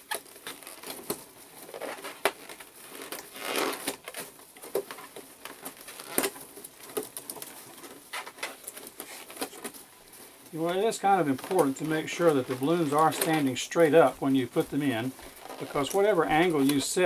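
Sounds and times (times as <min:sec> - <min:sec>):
balloons rubbing against plastic: 0:01.6 - 0:04.2, 0:07.9 - 0:17.0.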